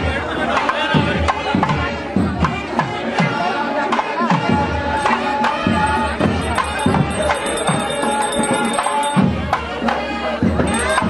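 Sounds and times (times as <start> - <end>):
drum strokes: 4.4 - 11.0
high ringing sound: 5.0 - 9.6, 10.6 - 11.0.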